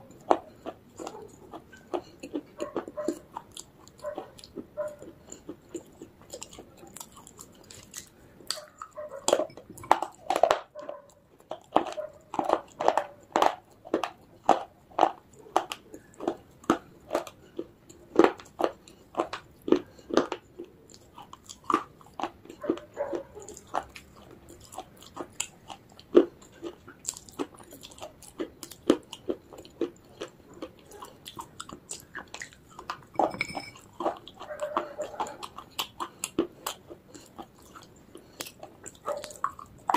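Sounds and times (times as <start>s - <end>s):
crisp crunches of chewing: 0.0s - 33.2s, 33.8s - 39.9s.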